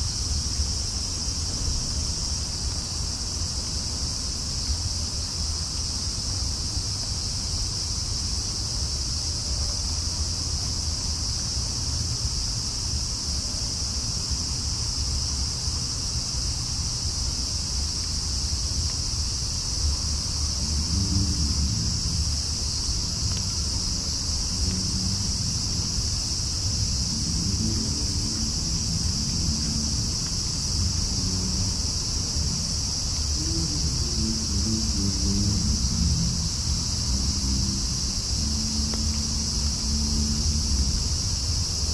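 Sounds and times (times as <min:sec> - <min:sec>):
crickets chirping: 0:00.0 - 0:41.9
low rumble: 0:19.8 - 0:41.9.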